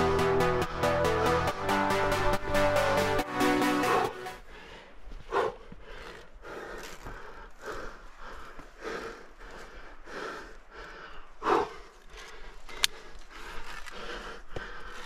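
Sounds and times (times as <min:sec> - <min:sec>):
person breathing hard: 0:03.6 - 0:15.0.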